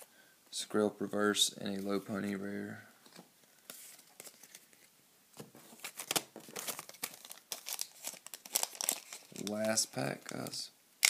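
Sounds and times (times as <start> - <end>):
foil wrapper crinkling: 5.7 - 10.6.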